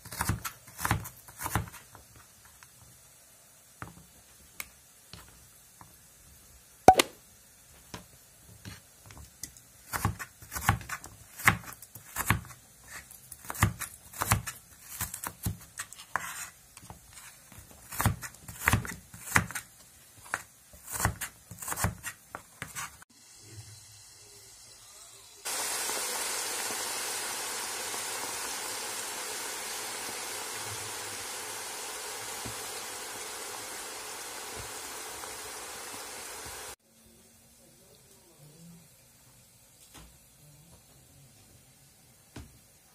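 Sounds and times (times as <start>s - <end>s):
potatoes sizzling in hot oil: 0.0s - 36.8s
knife chopping on wooden board: 17.8s - 22.9s.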